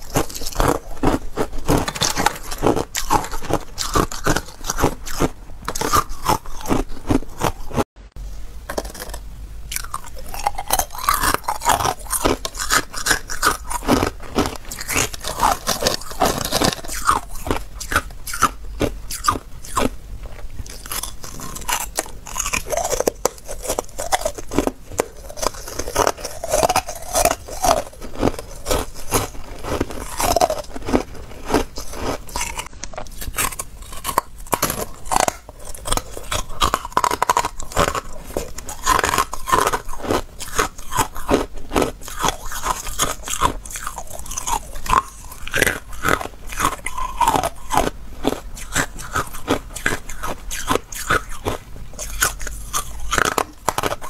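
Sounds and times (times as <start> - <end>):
ice crunching: 9.8 - 18.0.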